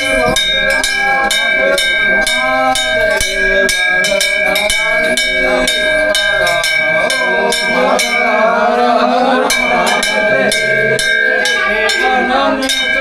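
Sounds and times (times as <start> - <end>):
crowd of voices: 0.0 - 13.0
metal bell struck rapidly: 0.0 - 13.0.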